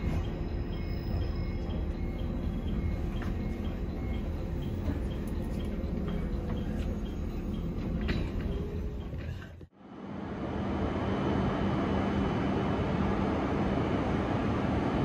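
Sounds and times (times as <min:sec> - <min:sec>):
train wheels rumbling: 0:00.0 - 0:09.7.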